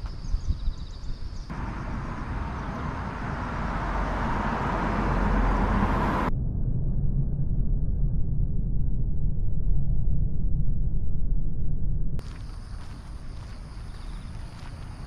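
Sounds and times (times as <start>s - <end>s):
low wind rumble on microphone: 0.0s - 15.0s
road traffic passing: 1.5s - 6.3s, 12.2s - 15.0s.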